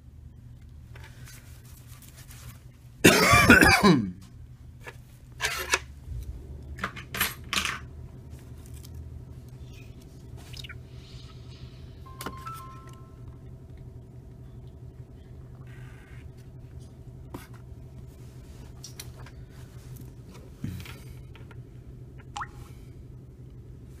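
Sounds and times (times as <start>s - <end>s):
short faint tone: 12.1s - 13.4s.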